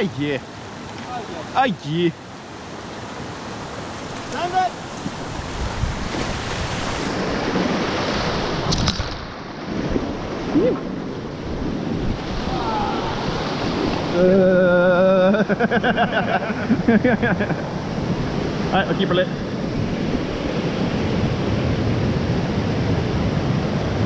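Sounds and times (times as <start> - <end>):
whitewater rushing: 0.0 - 24.0
wind buffeting microphone: 3.8 - 14.2
person whooping: 10.5 - 10.8, 12.4 - 13.2
person yelling: 12.4 - 13.2.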